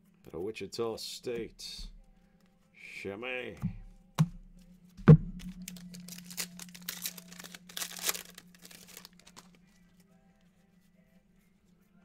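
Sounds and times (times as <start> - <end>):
loud thump: 5.0 - 5.7
foil wrapper tearing and crinkling: 5.4 - 9.6.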